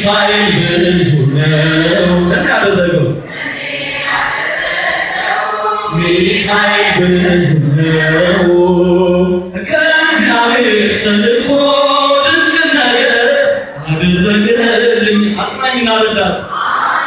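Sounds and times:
church choir singing a hymn: 0:00.0 - 0:13.8.

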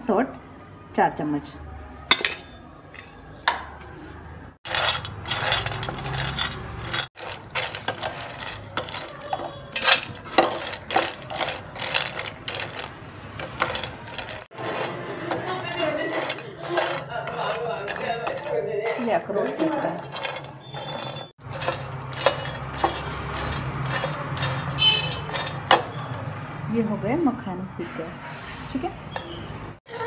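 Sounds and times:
nuts rattling in a dry pan: 0:04.7 - 0:25.8.

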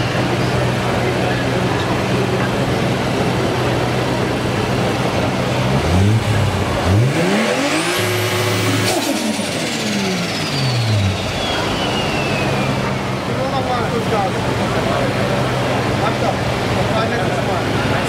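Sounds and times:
car engine revving: 0:00.0 - 0:18.0
turbo whistle: 0:10.2 - 0:13.0.

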